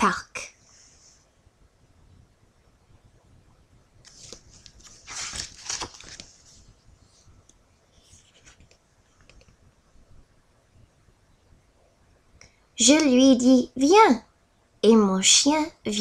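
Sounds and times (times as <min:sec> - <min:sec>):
book pages turning: 0:04.0 - 0:06.7, 0:08.0 - 0:09.5.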